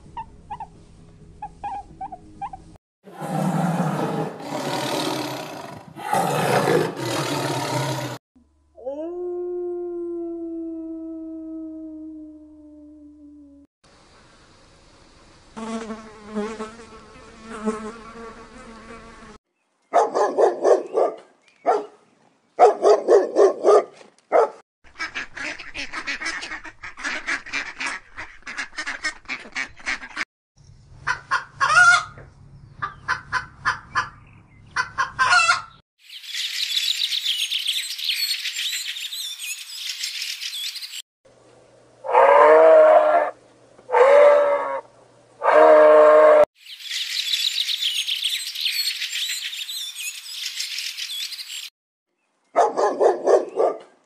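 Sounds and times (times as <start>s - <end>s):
waterfowl honking and quacking: 24.9s - 30.2s, 34.8s - 35.8s.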